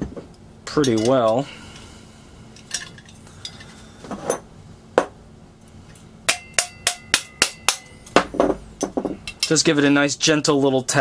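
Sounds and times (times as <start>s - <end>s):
tapping on metal: 6.3s - 9.5s.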